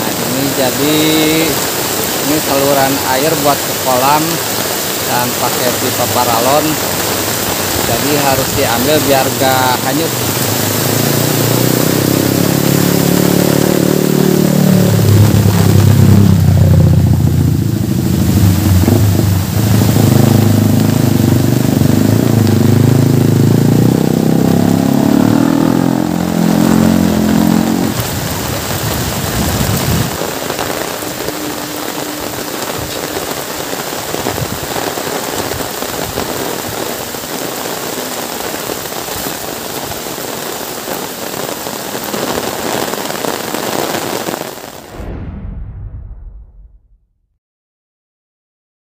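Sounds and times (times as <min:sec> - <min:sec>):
heavy rain falling: 0:00.0 - 0:45.0
vehicle engine running: 0:10.2 - 0:33.7.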